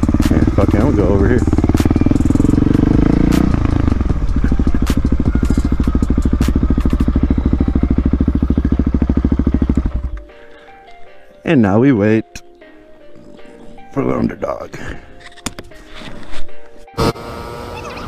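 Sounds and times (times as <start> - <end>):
dirt bike engine: 0.0 - 10.5.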